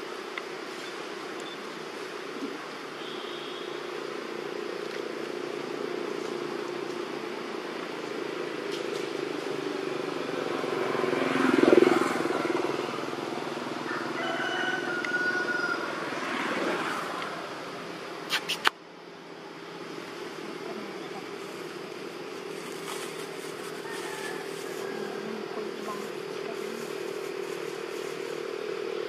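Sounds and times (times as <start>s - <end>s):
passing vehicle engine hum: 3.6s - 29.0s.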